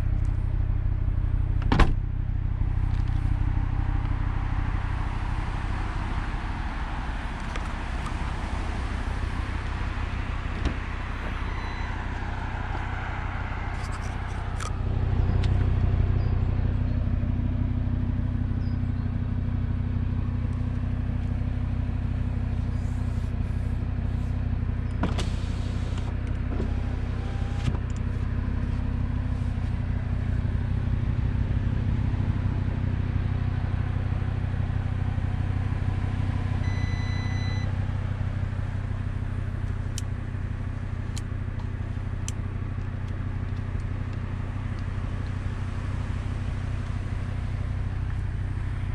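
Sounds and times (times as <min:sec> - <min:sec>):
car engine idling: 0:00.0 - 0:48.9
short beep: 0:11.2 - 0:12.2, 0:36.6 - 0:37.7.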